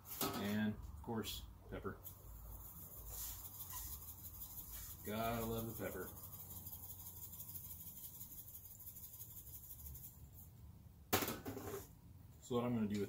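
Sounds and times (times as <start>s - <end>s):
pepper shaken from metal shaker: 2.0s - 10.5s.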